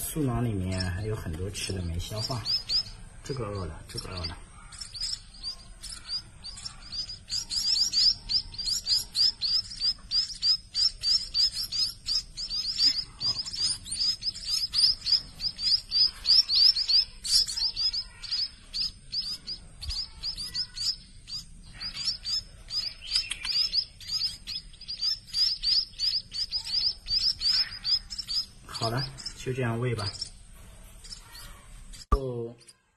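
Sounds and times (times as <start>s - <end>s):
chicks chirping: 0.0s - 32.8s.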